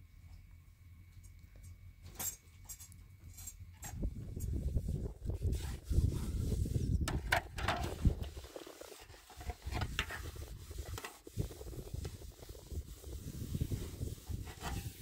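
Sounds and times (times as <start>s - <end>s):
steady low rumble: 3.9s - 15.0s
metal blade scraping on griddle: 13.7s - 15.0s.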